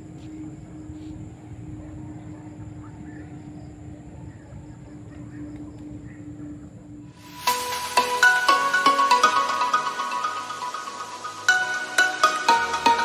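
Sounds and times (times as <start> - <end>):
steady low hum: 0.0 - 7.5
music: 7.1 - 13.0.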